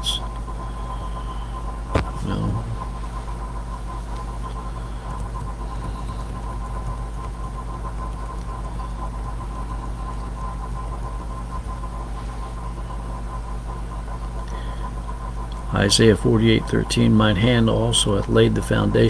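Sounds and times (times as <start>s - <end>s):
thin high whine: 0.0s - 6.8s
low hum: 0.0s - 19.0s.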